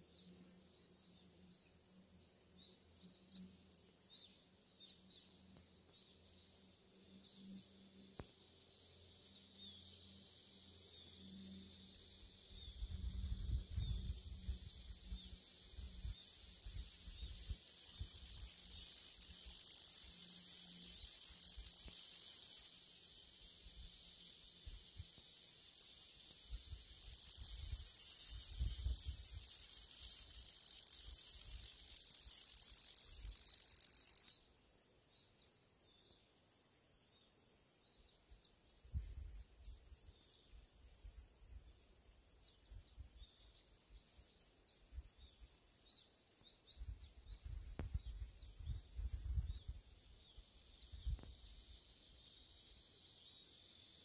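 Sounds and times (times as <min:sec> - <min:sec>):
insects shrilling: 0:09.6 - 0:34.5.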